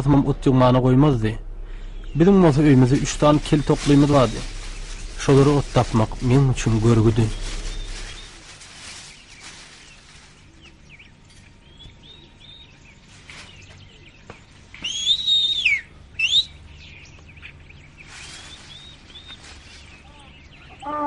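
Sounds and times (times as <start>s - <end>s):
birds chirping: 0.0s - 21.0s
loud whistled bird call: 14.8s - 16.6s.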